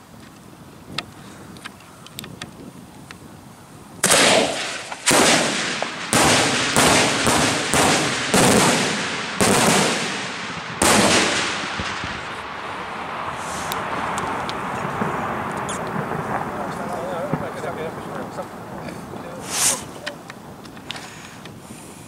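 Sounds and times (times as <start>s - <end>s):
firework crackling: 2.6s - 22.0s
firework shells bursting: 4.0s - 21.6s.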